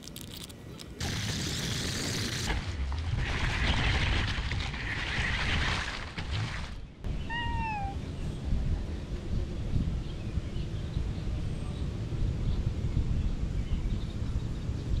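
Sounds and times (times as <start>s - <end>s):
cat meowing: 7.1s - 8.0s.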